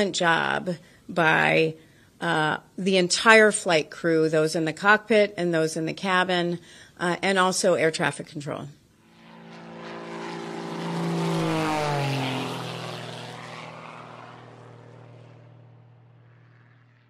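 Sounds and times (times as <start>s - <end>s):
aircraft flying past: 8.9s - 17.0s.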